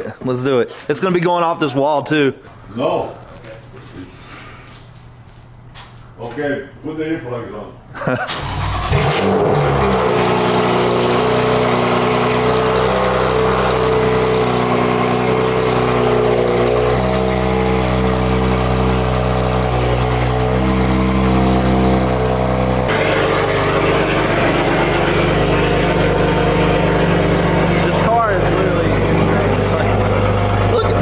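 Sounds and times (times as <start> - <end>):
car engine idling loudly: 9.0 - 31.0.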